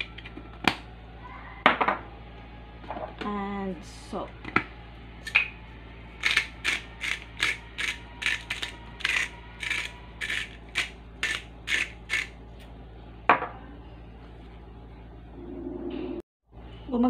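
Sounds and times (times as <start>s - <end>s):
salt grinder grinding: 6.2s - 12.4s.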